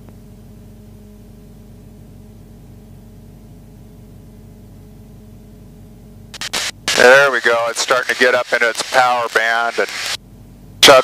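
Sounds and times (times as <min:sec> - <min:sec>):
propeller aircraft engine droning: 0:00.0 - 0:11.0.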